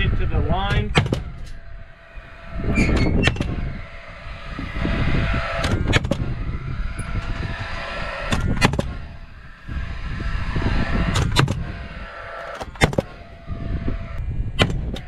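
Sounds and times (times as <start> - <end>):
wind rumbling on microphone: 0.0 - 15.0
nail gun shots into wood: 14.6 - 15.0.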